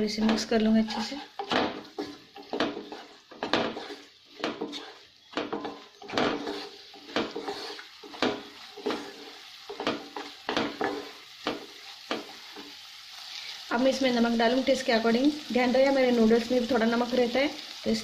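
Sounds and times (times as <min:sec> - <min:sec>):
wooden spatula scraping a pan: 0:00.0 - 0:13.5
oil sizzling: 0:00.0 - 0:18.0.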